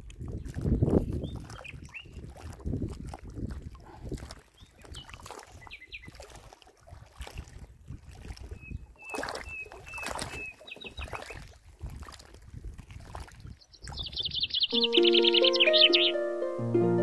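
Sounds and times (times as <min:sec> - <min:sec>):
water sloshing: 0:00.0 - 0:14.2
wind on microphone: 0:00.0 - 0:14.7.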